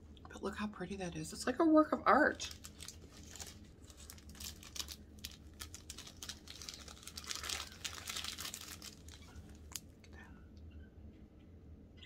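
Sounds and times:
plastic wrapper crinkling: 2.3s - 10.2s.

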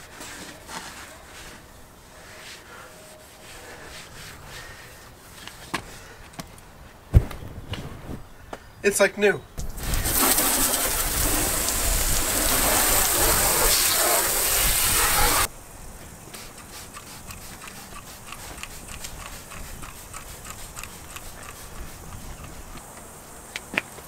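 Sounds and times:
hose spray hissing on metal hull: 9.6s - 15.5s, 16.1s - 23.5s.

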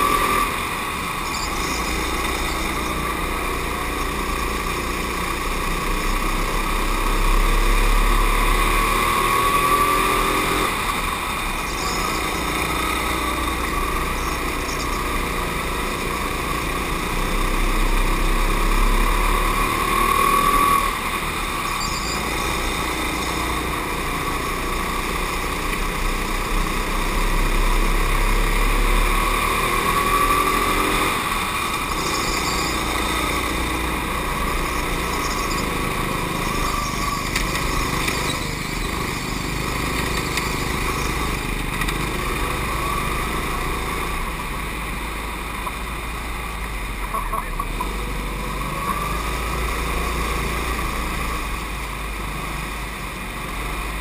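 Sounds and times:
go-kart engine revving: 0.0s - 54.0s.

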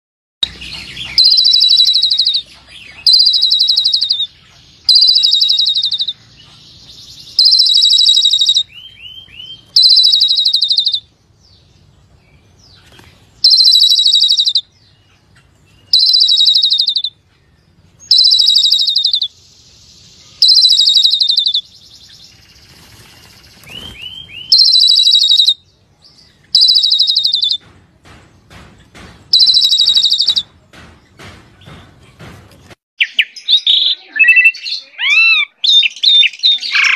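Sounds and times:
bird singing buzzy phrases: 0.4s - 27.6s, 29.3s - 30.4s, 33.0s - 36.9s.

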